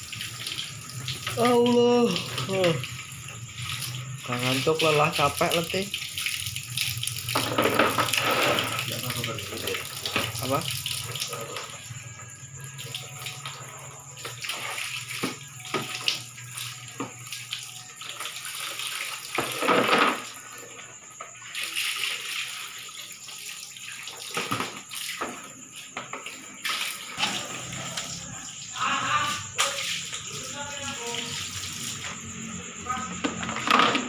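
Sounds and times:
tap water splashing into basin: 0.0 - 11.9, 12.8 - 28.4, 29.2 - 32.3, 33.1 - 34.0.

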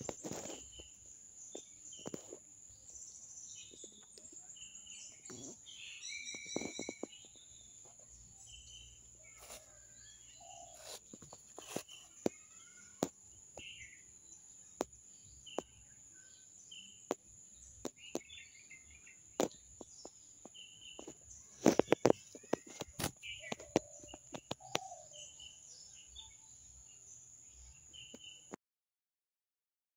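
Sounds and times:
birds chirping: 0.0 - 28.6.

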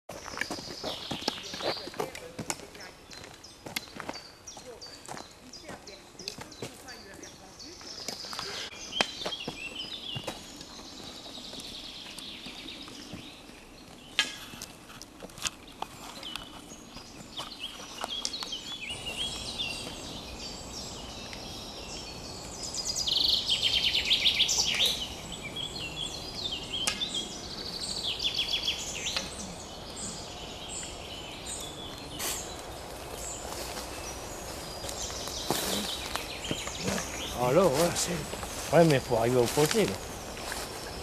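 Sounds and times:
birds singing and calling: 0.2 - 41.0
background hiss: 17.6 - 41.0.

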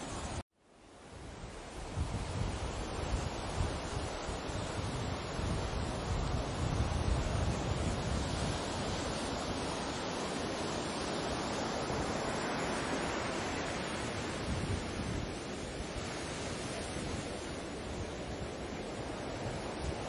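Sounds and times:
wind: 0.0 - 20.0
waves washing in: 1.0 - 20.0.

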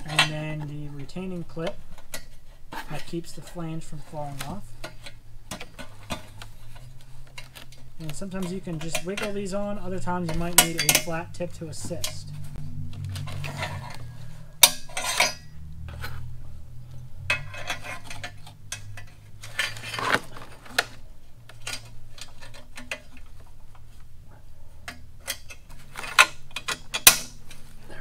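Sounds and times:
light metal clinks and scraping: 0.0 - 16.3, 16.9 - 28.0.

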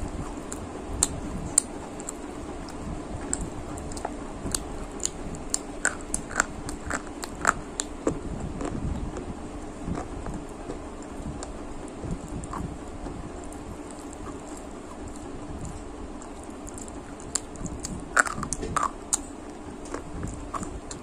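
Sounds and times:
person crunching snack sticks: 3.2 - 7.9, 13.9 - 21.0.

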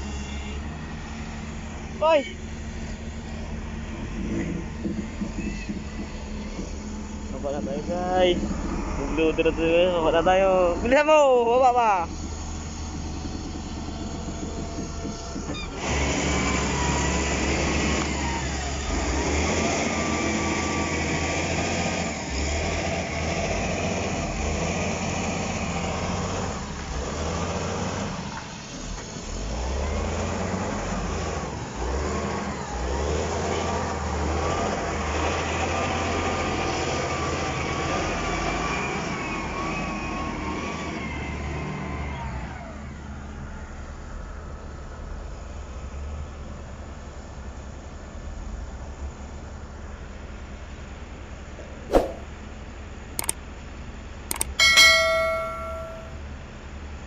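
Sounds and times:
heavy diesel machinery running: 0.0 - 31.1.

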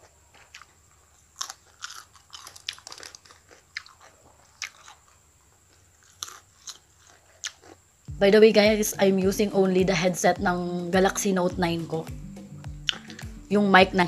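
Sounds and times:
crunching raw salad vegetables: 0.0 - 8.1, 12.9 - 13.3.

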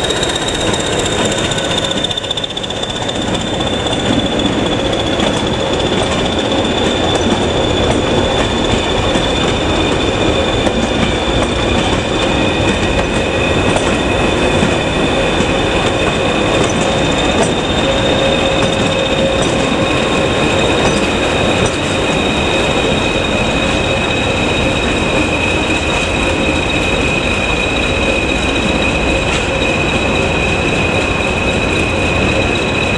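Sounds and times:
diesel locomotive engine rumble: 0.0 - 32.9
high-pitched whistling tones: 0.0 - 32.9.

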